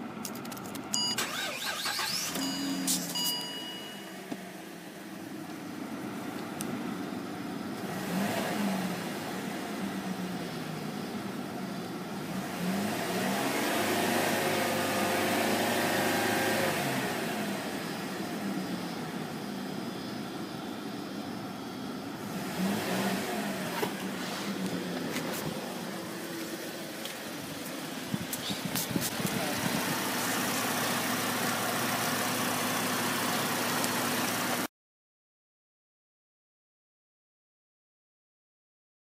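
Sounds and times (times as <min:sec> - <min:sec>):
car engine idling and revving: 0:00.0 - 0:34.7.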